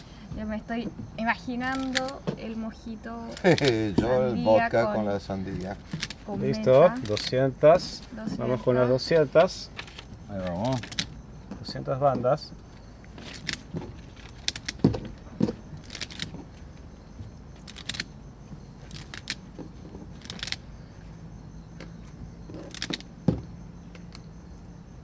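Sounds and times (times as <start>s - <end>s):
rubber bands snapping: 13.2s - 14.9s.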